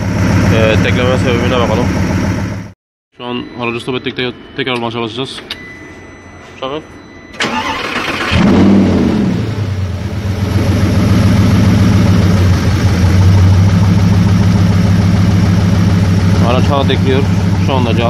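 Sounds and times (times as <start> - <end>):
car engine revving and idling: 0.0 - 2.7, 7.4 - 18.0
starter motor cranking: 7.4 - 8.6.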